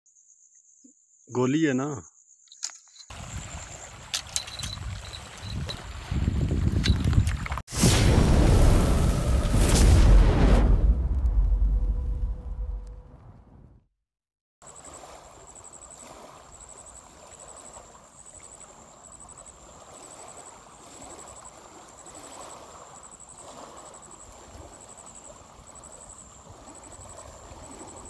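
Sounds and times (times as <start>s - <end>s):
insect chirping in pulsed bursts: 0.1s - 6.4s, 14.6s - 28.0s
waves lapping on stony shore: 3.1s - 7.7s, 14.6s - 28.0s.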